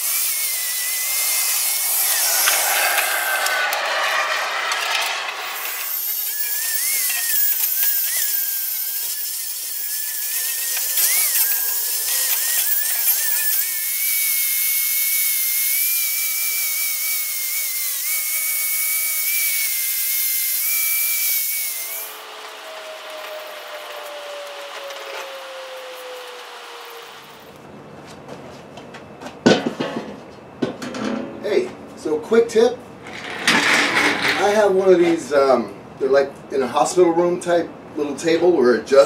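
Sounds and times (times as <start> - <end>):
angle grinder grinding rust: 0.0 - 24.2, 33.0 - 34.7
grinder spinning down: 0.0 - 27.6, 33.0 - 34.8.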